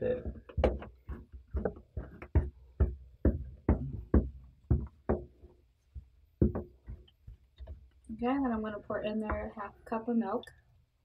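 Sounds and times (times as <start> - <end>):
spatula knocking on glass bowl: 0.0 - 7.8, 9.2 - 9.7.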